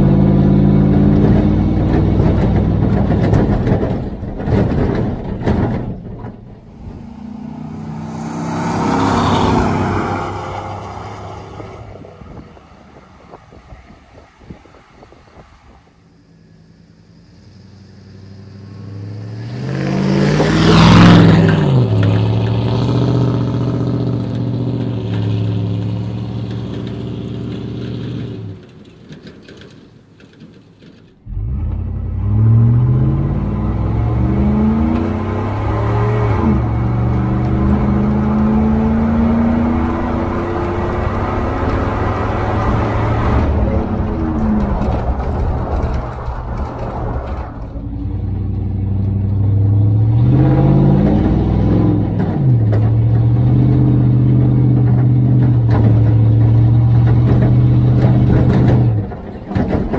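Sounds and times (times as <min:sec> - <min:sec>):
truck exhaust accelerating and slowing: 0:00.0 - 0:59.9
pickup truck exhaust driving past: 0:06.6 - 0:28.5.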